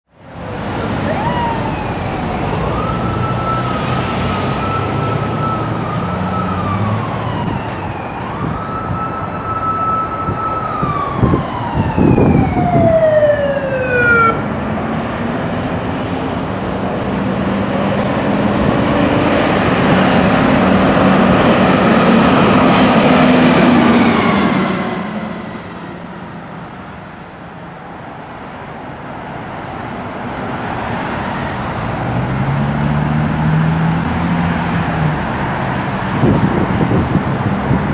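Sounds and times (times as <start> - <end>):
truck engine and tyres passing: 0.2 - 37.9
fire engine siren wailing: 0.3 - 29.1, 31.0 - 37.9
loud horn blasts: 22.4 - 25.6.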